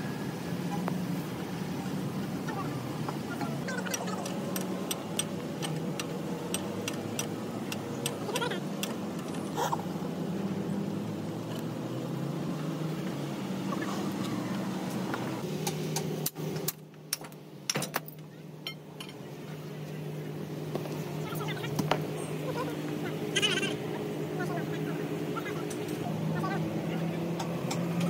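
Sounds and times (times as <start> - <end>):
engine running: 0.0 - 28.0
sharp clicks and knocks: 3.9 - 9.4.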